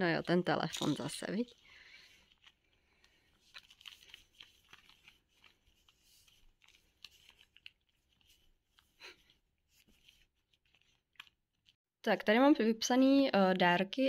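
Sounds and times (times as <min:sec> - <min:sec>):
faint rustles of book: 0:00.1 - 0:11.8.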